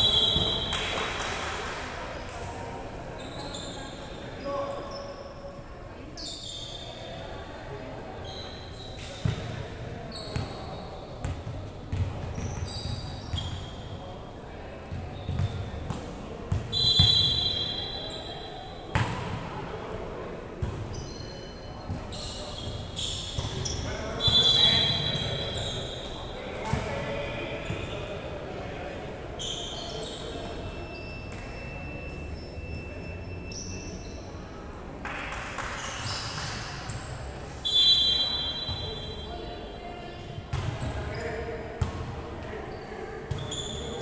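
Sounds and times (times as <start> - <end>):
referee's whistle blast: 0.0 - 0.9, 16.7 - 18.8, 24.2 - 26.0, 37.6 - 39.3
voices: 0.0 - 44.0.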